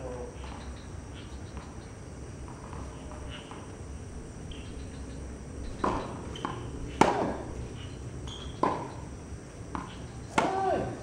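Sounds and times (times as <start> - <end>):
tennis balls struck by rackets: 5.7 - 7.7, 8.3 - 11.0.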